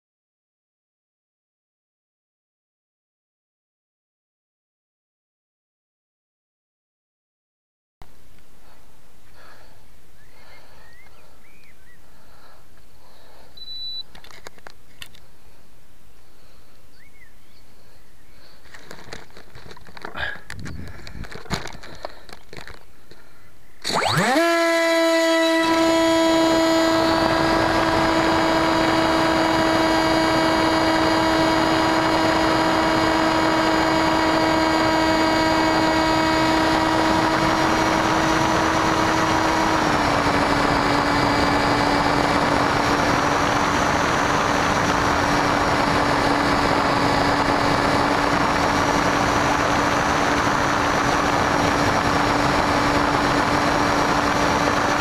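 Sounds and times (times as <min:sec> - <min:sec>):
electric motor high whine: 0:23.8 - 0:55.0.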